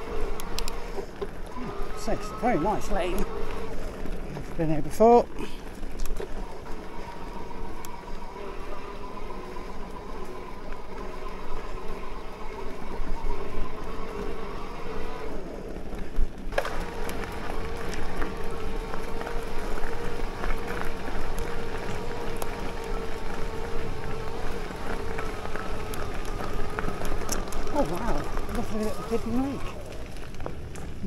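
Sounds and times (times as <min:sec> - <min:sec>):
electric motor whine: 0:00.0 - 0:04.7, 0:05.6 - 0:31.0
tyre and wind noise: 0:12.3 - 0:31.0.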